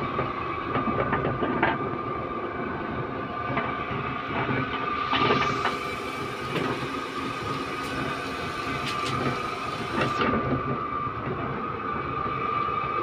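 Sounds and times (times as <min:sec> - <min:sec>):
guillotine machine humming: 0:05.1 - 0:10.4.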